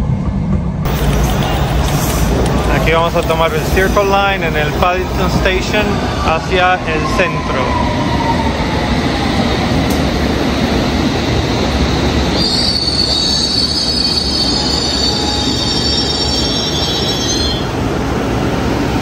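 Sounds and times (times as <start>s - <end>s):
train rumbling on rails: 0.0s - 19.0s
train wheels squealing: 12.3s - 17.7s.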